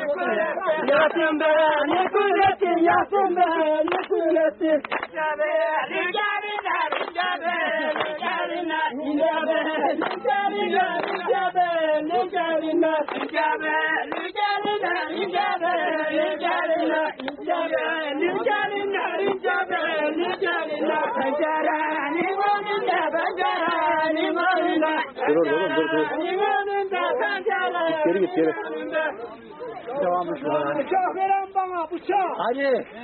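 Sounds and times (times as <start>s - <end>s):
group of people singing: 0.0s - 32.2s
sharp knocks or claps: 4.8s - 5.1s, 11.0s - 11.2s, 13.1s - 13.4s.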